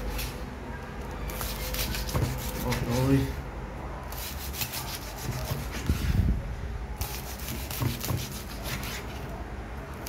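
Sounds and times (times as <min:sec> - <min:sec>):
knife sawing through crisp skin: 0:01.3 - 0:03.1, 0:04.1 - 0:06.1, 0:07.0 - 0:09.2.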